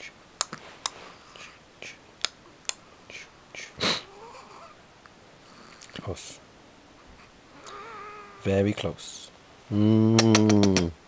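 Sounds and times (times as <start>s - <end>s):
breathy whispery sounds: 0.0s - 2.0s
soft clicks while bottle feeding: 10.2s - 10.8s.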